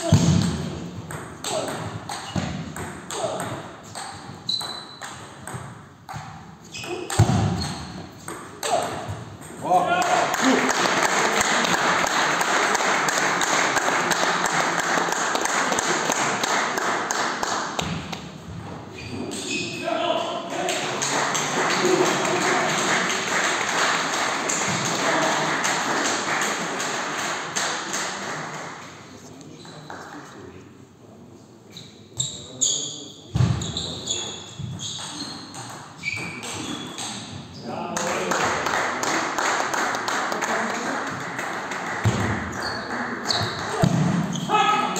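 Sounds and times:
sports shoes squeaking: 3.2 - 5.5, 6.6 - 9.1, 18.9 - 19.9, 31.7 - 37.7, 42.5 - 44.6
crowd clapping: 10.1 - 17.8, 20.6 - 29.1, 38.0 - 43.8.

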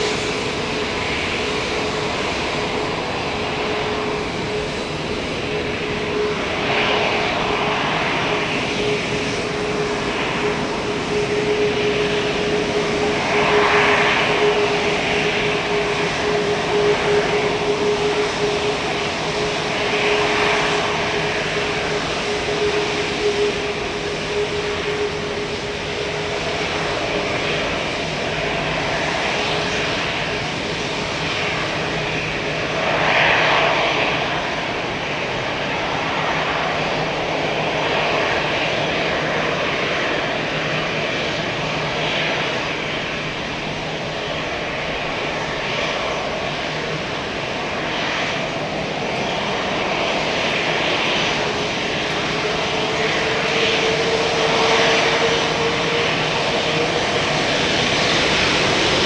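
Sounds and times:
jet engine noise: 0.0 - 59.0
jet engine whine: 0.0 - 59.0.

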